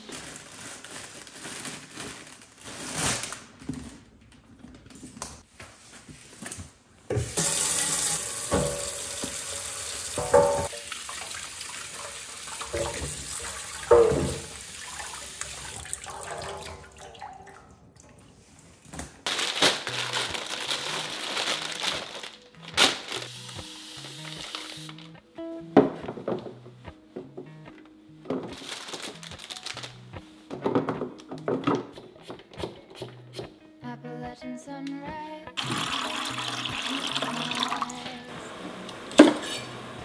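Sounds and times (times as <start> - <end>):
plastic bag rustling: 0.0 - 5.1, 18.4 - 25.2, 28.3 - 31.3
faucet running into steel sink: 7.3 - 17.6, 35.6 - 38.1.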